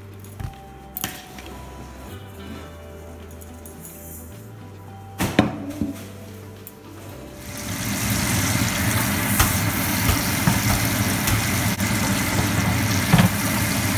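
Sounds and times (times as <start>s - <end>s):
vegetables sizzling in a pan: 7.4s - 13.9s.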